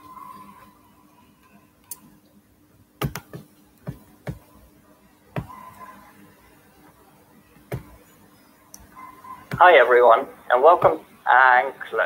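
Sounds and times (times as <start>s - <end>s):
computer clicks and taps: 3.0s - 4.5s.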